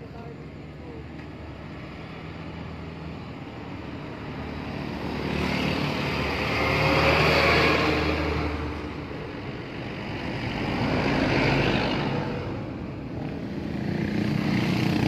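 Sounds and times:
heavy truck passing by: 0:04.3 - 0:15.0.

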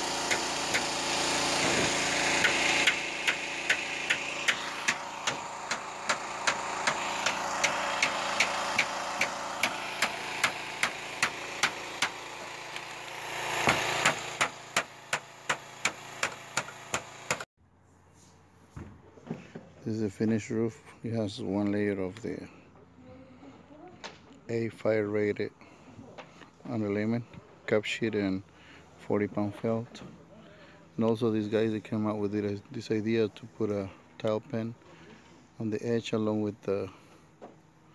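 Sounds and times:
machine running: 0:00.0 - 0:17.5.

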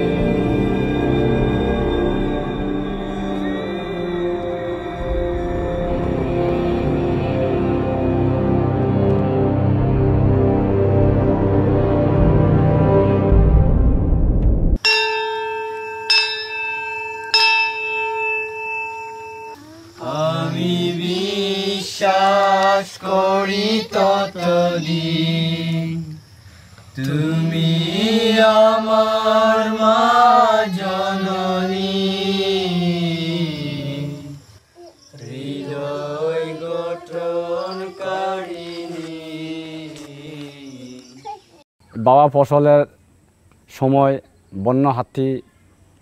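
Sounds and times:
man chanting: 0:20.0 - 0:26.2.

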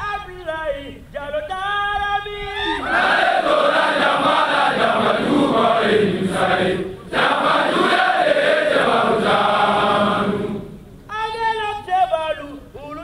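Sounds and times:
group chanting in unison: 0:02.8 - 0:10.8.

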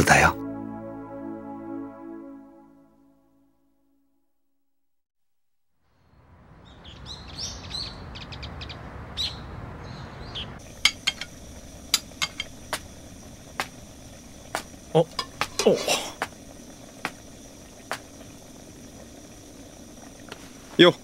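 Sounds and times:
birds chirping: 0:06.6 - 0:10.6.

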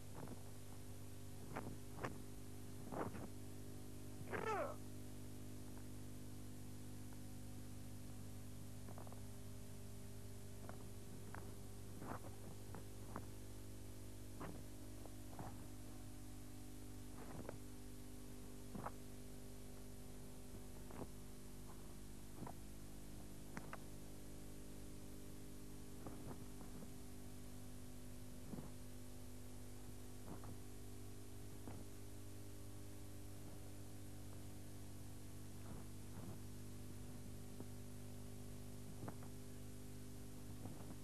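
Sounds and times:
electrical mains hum: 0:00.0 - 0:41.0
tape hiss: 0:00.0 - 0:41.0
faint sharp snaps: 0:23.5 - 0:24.0, 0:38.9 - 0:39.4.

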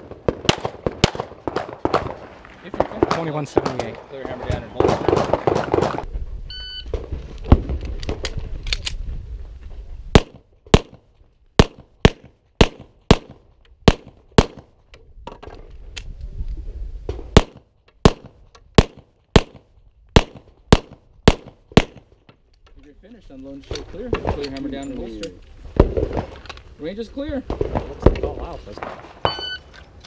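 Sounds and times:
pistol shots: 0:00.0 - 0:06.0, 0:10.2 - 0:11.0, 0:11.6 - 0:14.7, 0:17.3 - 0:22.1
shot timer beep: 0:29.3 - 0:29.6.

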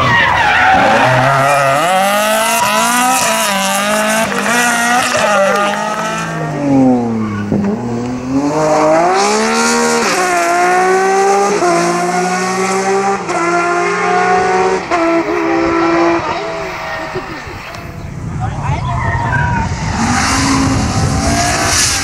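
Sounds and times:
rally car engine accelerating: 0:00.0 - 0:18.3, 0:19.4 - 0:22.0.

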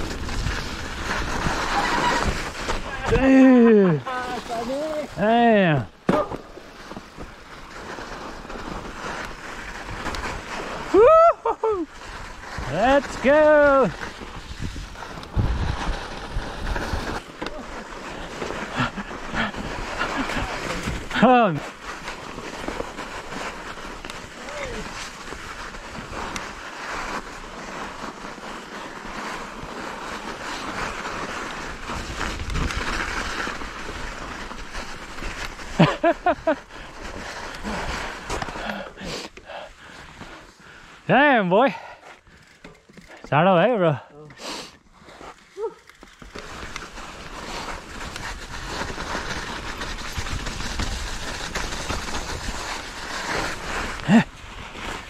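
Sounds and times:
wind rumbling on microphone: 0:00.0 - 0:03.3, 0:13.9 - 0:17.3, 0:46.5 - 0:55.0
bike rattling over bumps: 0:00.0 - 0:11.0, 0:11.9 - 0:39.0, 0:42.0 - 0:44.0, 0:44.9 - 0:55.0
bike tyres rolling on snow: 0:00.0 - 0:55.0
wind on microphone: 0:14.4 - 0:17.2.

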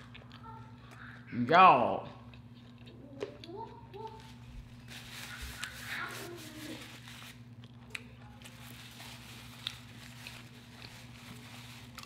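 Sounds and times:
low electrical hum: 0:00.0 - 0:12.0
paper napkin rustling: 0:04.2 - 0:07.5, 0:08.4 - 0:12.0.

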